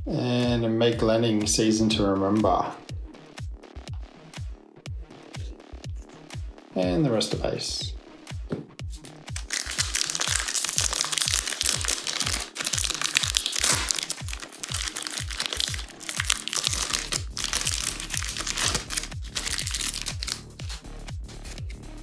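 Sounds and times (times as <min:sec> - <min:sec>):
foil packet crinkling and tearing: 0:09.4 - 0:20.8.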